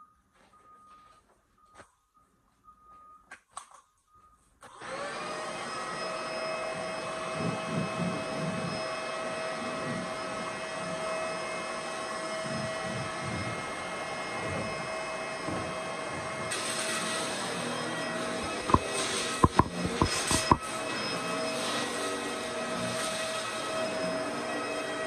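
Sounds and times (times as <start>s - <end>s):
vacuum cleaner running over carpet: 4.7s - 25.0s.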